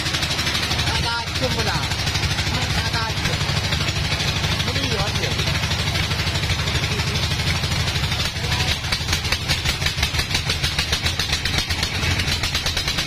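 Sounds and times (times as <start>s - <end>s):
band saw running: 0.0s - 13.0s.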